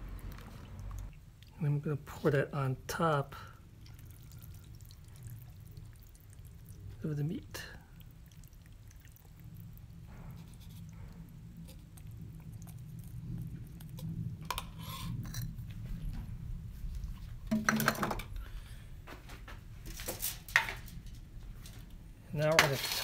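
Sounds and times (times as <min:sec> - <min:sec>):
steady low rumble: 0:00.0 - 0:17.5
container and utensils knocking on stone: 0:17.5 - 0:18.3.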